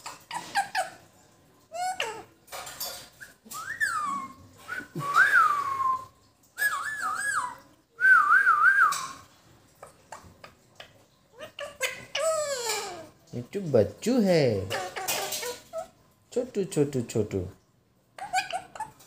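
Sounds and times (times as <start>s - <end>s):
person whistling: 4.7s - 7.0s, 8.0s - 9.0s.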